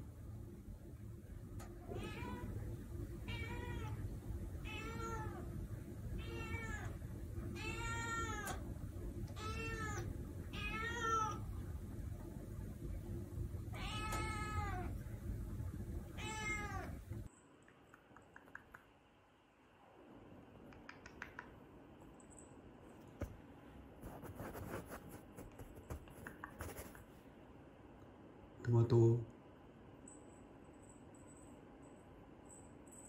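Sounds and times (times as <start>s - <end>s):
steady low hum: 0.0s - 33.0s
cat meowing: 3.3s - 4.0s, 4.6s - 5.5s, 6.2s - 7.0s, 7.6s - 8.6s, 9.3s - 11.4s, 13.8s - 14.9s, 16.2s - 17.0s.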